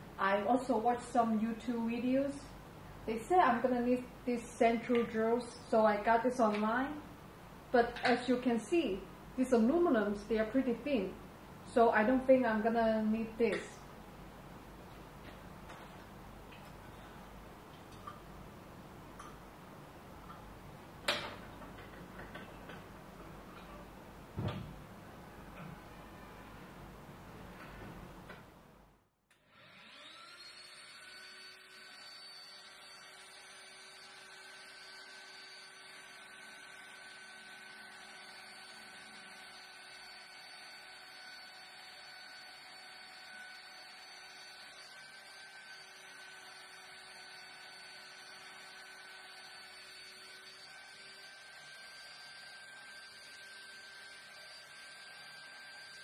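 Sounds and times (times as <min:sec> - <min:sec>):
drill press motor whine: 0:29.3 - 0:56.0.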